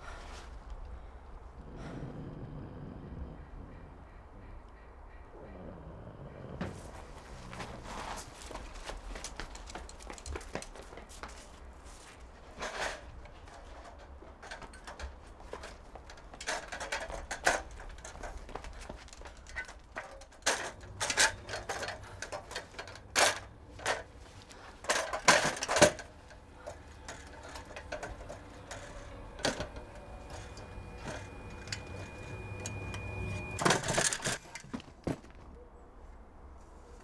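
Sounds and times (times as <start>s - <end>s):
metal ladder clanking: 12.5s - 34.8s.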